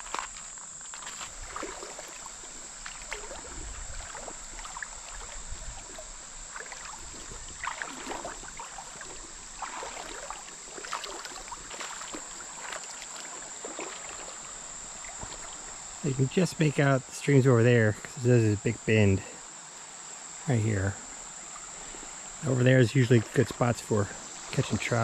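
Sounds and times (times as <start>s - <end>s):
footsteps wading through water: 0.0s - 15.8s
high insect drone: 0.0s - 25.0s.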